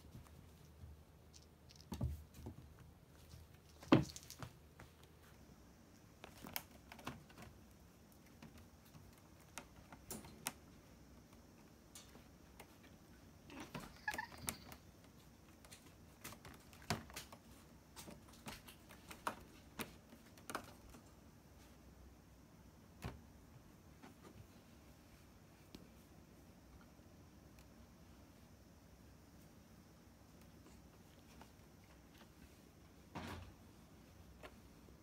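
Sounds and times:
cats tapping and clicking: 6.2 - 21.2.

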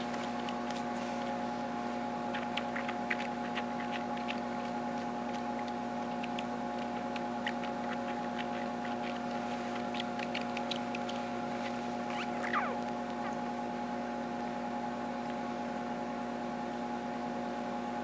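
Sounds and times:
kitten suckling wet clicks: 0.0 - 1.3, 2.3 - 13.6
steady background hum: 0.0 - 18.0.

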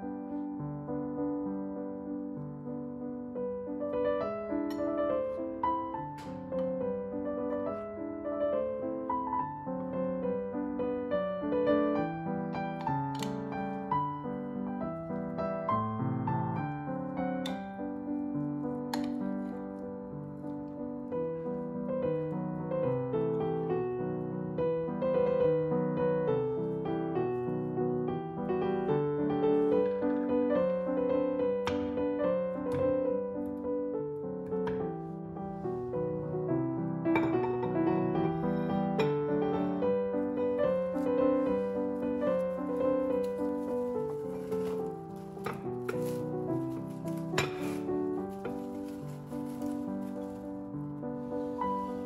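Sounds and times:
gentle piano music: 0.0 - 52.0.

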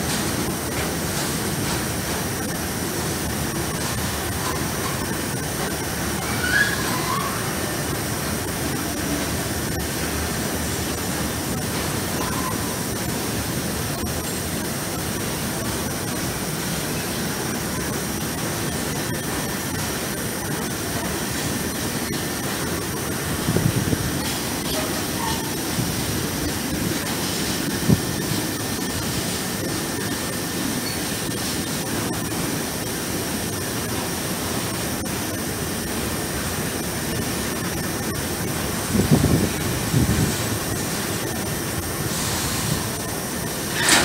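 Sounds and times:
train wheels rumbling on rail: 0.0 - 44.0
high squeal: 6.2 - 7.7.

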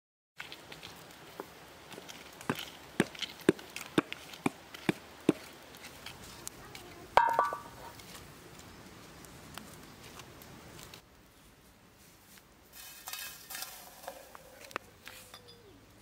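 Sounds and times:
stick knocking through embers: 0.4 - 8.7
frying pan clang on stones: 7.2 - 8.0.

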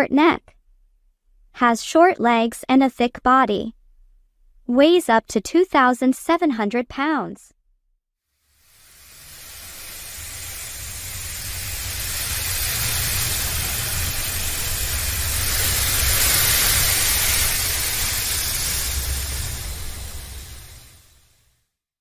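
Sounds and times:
rushing hiss: 8.4 - 21.6
low rumble: 10.3 - 21.2.

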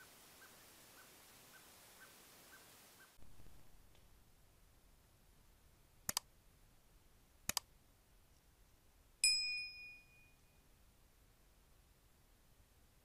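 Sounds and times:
mouse clicks: 6.0 - 6.3, 7.5 - 7.7
bright bell-like ding: 9.2 - 10.6.

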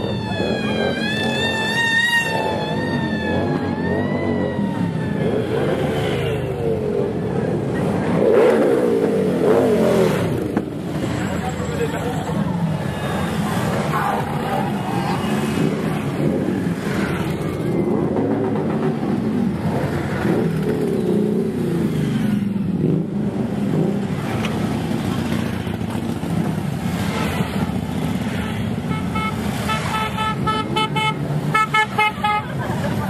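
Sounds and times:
motorcycles revving past: 0.0 - 11.4, 12.3 - 30.5
horn beeping: 28.8 - 32.6.

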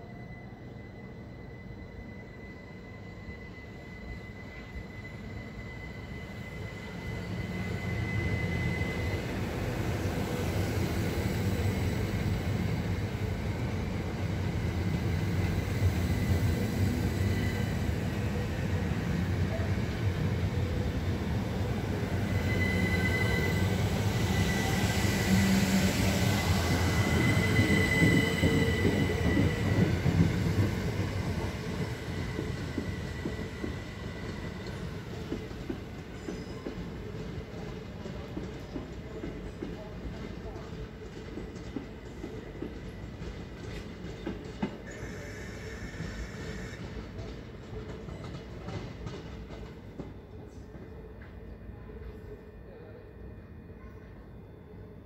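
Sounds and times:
high-pitched train whine: 0.0 - 55.0
wheels rumbling on rail: 7.9 - 50.8.

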